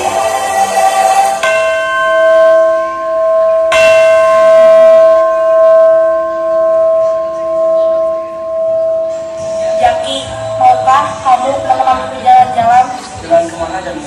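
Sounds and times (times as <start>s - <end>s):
bell ringing: 0.0s - 11.2s.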